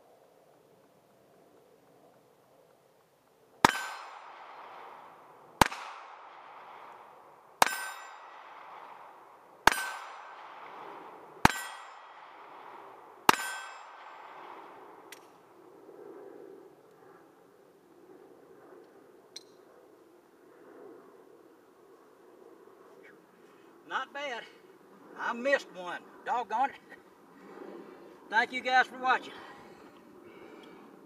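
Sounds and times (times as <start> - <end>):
pistol shots: 3.6 - 14.7
bullet clanging on steel target: 7.6 - 8.4, 11.5 - 12.0, 13.3 - 14.1.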